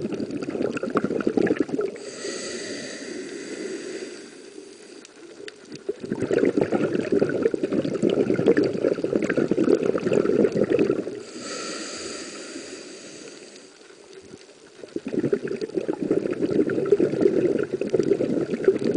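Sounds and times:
bubbling exhaled air underwater: 0:00.0 - 0:18.9
hissing regulator inhale: 0:02.0 - 0:05.3, 0:11.2 - 0:14.0.

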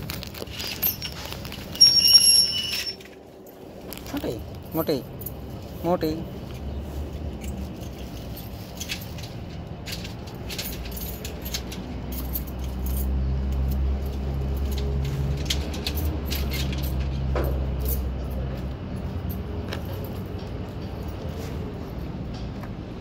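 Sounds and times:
low vehicle rumble: 0:00.0 - 0:23.0.

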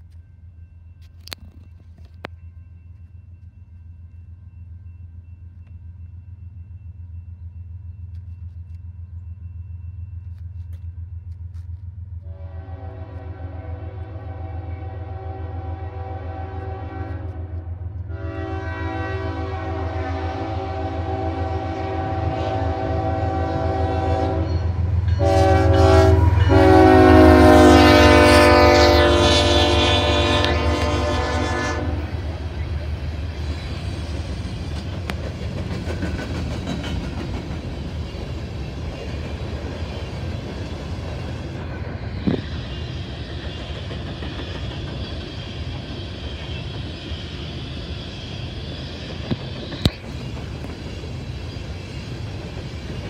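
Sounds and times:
train air horn blasts: 0:12.2 - 0:32.4
locomotive engine rumble: 0:19.3 - 0:53.0.

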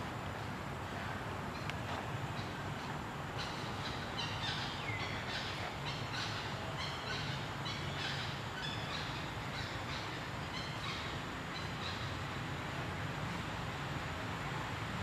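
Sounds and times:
birds chirping: 0:00.4 - 0:12.4.

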